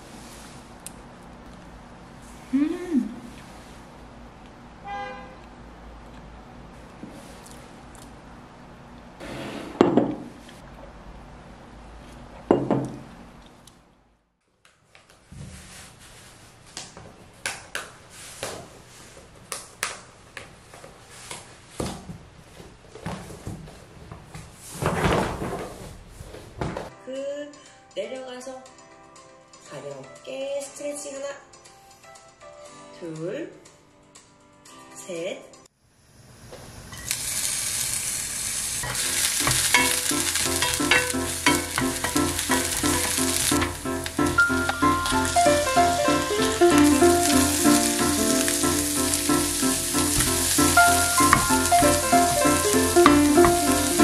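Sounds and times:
onions sizzling in hot oil: 36.1s - 54.0s
wooden spatula stirring: 38.8s - 45.7s, 48.4s - 54.0s.

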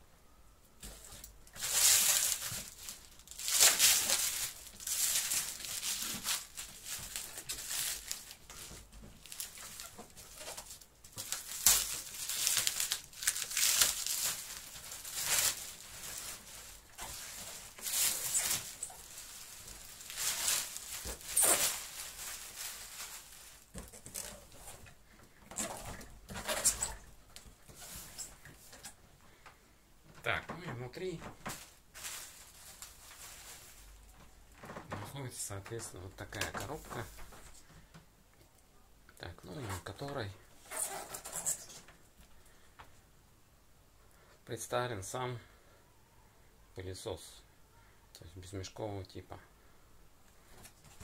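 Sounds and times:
plastic packaging crinkling: 0.8s - 24.9s, 31.0s - 34.9s.

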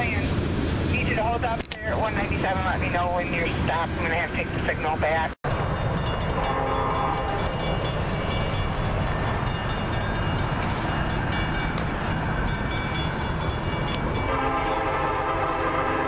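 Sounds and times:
low train rumble: 0.0s - 16.0s
train air horn: 6.4s - 7.4s, 14.3s - 16.0s.

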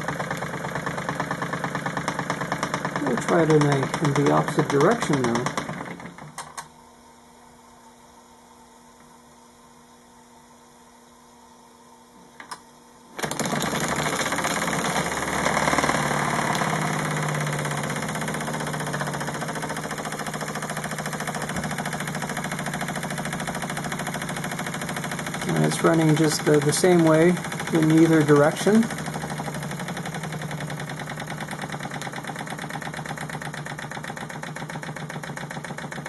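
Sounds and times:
clicks: 2.0s - 5.6s
toy steam engine clattering: 2.0s - 6.0s, 13.2s - 30.6s
faint steady hum: 3.0s - 13.2s.

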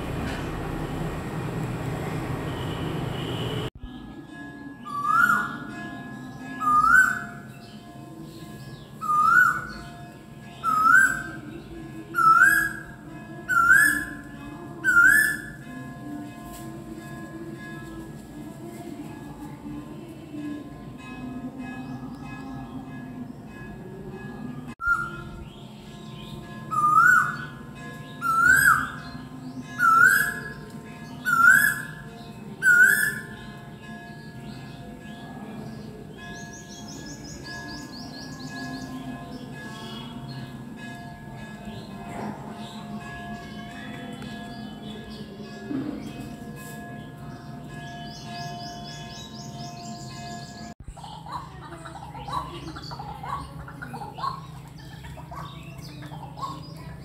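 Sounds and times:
bird whistled calls: 24.8s - 25.2s.

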